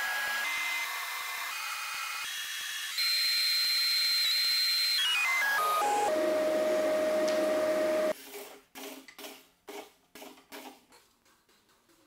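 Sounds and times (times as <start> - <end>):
table saw whine: 0.0 - 8.1.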